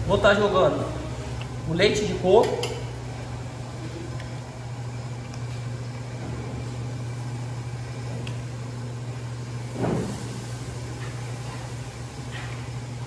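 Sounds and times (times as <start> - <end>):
exhaust fan humming: 0.0 - 13.0.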